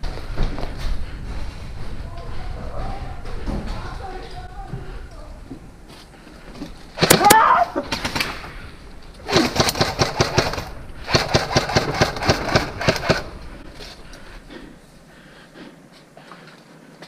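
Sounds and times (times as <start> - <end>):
running footsteps on hard ground: 0.0 - 7.0
faint shuffling: 0.0 - 9.3, 13.3 - 17.0.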